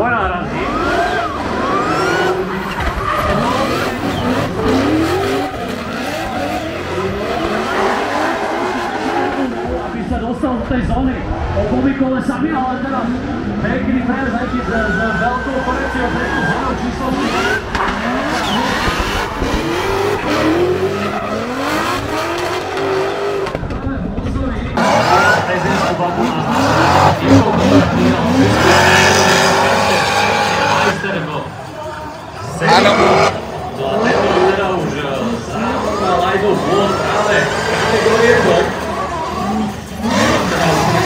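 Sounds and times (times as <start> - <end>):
car engines revving: 0.0 - 41.0
tyres squealing: 0.5 - 9.7, 14.5 - 23.4.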